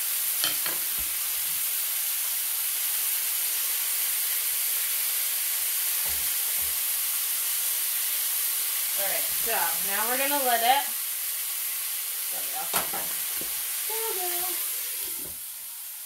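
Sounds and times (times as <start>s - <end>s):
chicken sizzling in a skillet: 0.0s - 16.0s.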